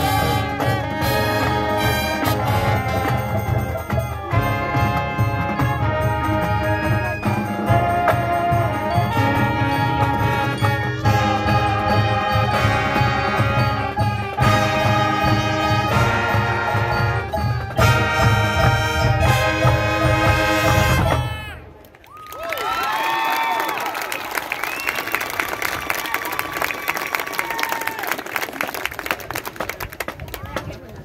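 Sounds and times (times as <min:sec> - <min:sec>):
mallet percussion: 0:00.0 - 0:21.4
drums: 0:00.0 - 0:21.7
brass instruments: 0:00.0 - 0:21.8.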